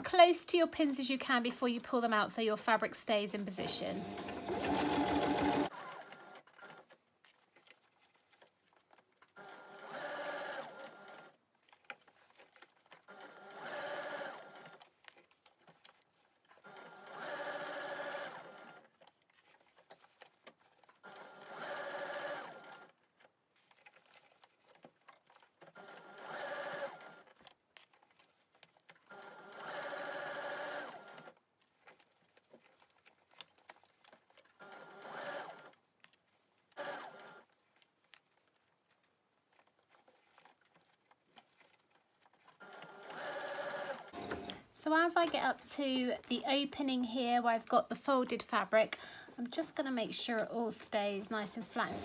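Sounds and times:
sewing machine stitching: 3.5s - 7.0s, 9.2s - 23.0s, 23.6s - 35.8s, 36.7s - 37.9s, 39.6s - 46.4s, 49.6s - 52.0s.

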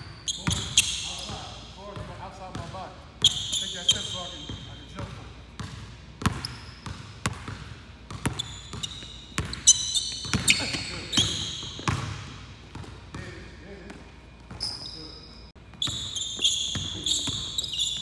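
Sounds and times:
sneakers squeaking on court: 0.0s - 18.0s
basketball bouncing on wooden floor: 5.6s - 13.3s.

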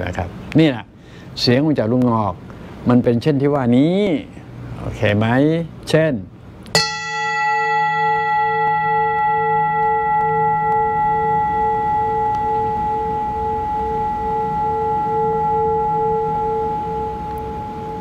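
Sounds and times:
metal singing bowl ringing: 6.8s - 18.0s.

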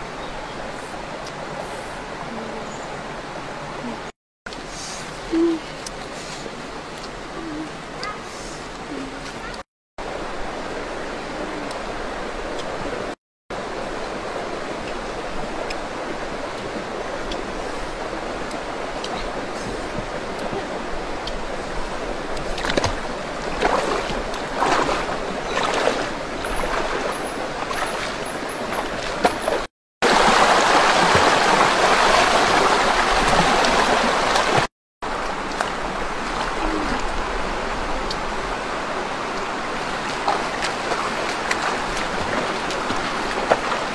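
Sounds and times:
rocky stream flowing: 10.0s - 43.9s
splashing in water: 22.3s - 37.2s, 39.8s - 43.9s.

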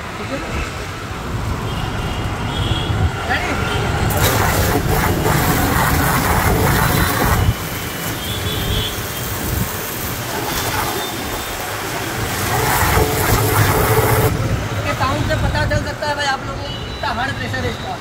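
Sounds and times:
pressure washer jet hissing: 4.1s - 14.4s.

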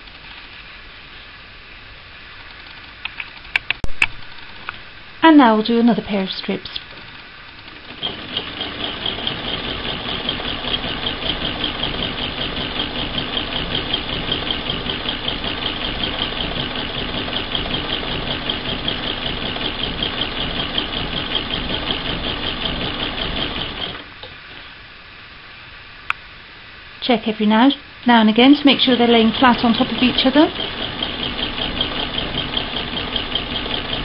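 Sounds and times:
sewing machine clatter: 6.9s - 24.1s, 28.6s - 34.0s.

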